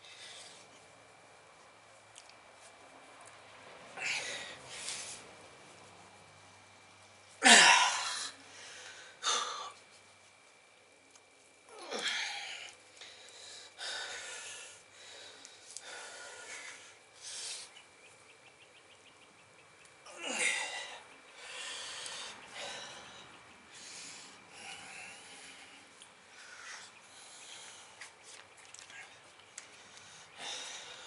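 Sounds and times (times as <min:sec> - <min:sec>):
man breathing hard: 0:03.9 - 0:05.3, 0:07.4 - 0:09.8, 0:11.9 - 0:17.8, 0:20.1 - 0:28.2, 0:28.8 - 0:31.0.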